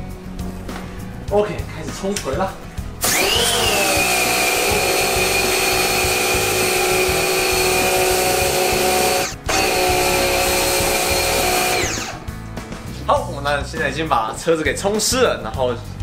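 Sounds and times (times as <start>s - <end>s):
pressure washer motor whine: 3.0s - 12.2s.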